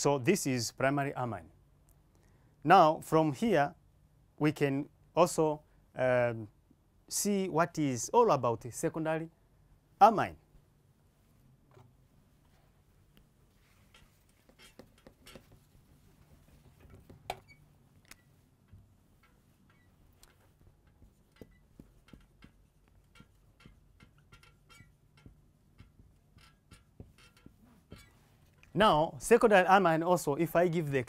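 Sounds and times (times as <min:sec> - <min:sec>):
marker pen squeaking on whiteboard: 0:13.6 - 0:28.7.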